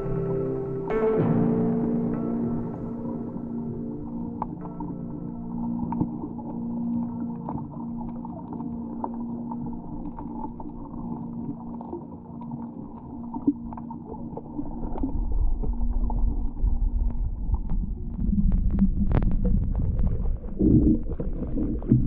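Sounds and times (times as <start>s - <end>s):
underwater water sloshing: 2.5s - 22.0s
low rumble: 13.3s - 22.0s.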